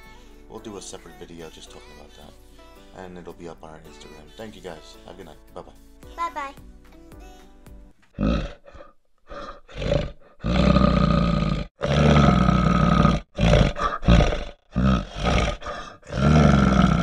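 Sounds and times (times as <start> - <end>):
animal roaring and growling: 8.2 - 17.0.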